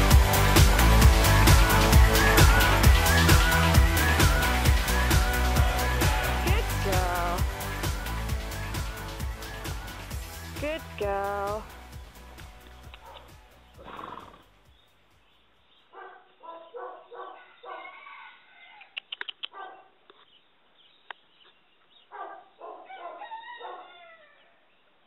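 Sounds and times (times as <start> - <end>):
sharp clicks: 12.6 - 13.3, 19.0 - 19.6.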